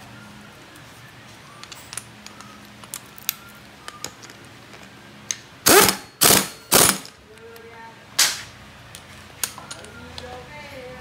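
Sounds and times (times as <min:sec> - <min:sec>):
loud bursts of noise: 0:05.6 - 0:07.1.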